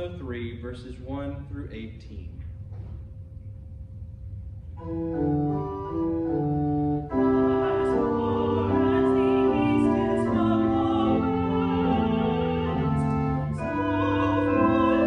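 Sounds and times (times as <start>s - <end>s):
organ playing a melody with chords: 4.8s - 15.0s.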